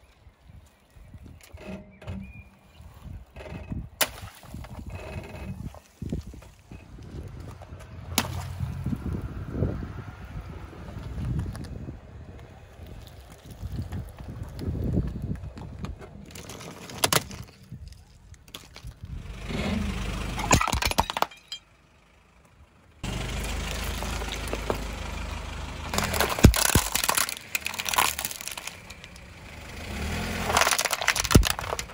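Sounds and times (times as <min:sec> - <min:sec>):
tyre rumbling on road: 0:01.1 - 0:21.6, 0:23.0 - 0:31.9
brittle objects cracking under wheel: 0:11.0 - 0:19.2, 0:20.4 - 0:21.6, 0:25.9 - 0:29.4, 0:30.0 - 0:31.9
jelly squashing: 0:26.0 - 0:29.2, 0:30.5 - 0:31.9.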